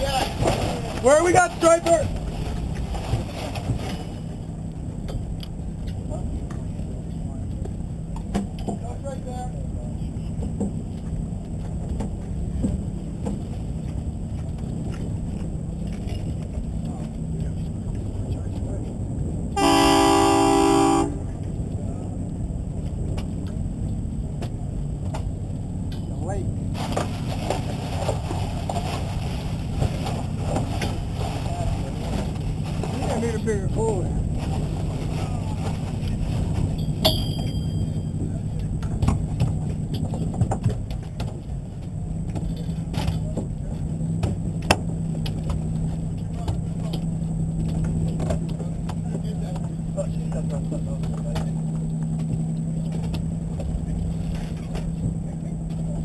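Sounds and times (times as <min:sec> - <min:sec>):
boat engine humming: 0:00.0 - 0:56.0
low rumble: 0:00.0 - 0:56.0
boat horn blast: 0:19.6 - 0:21.4.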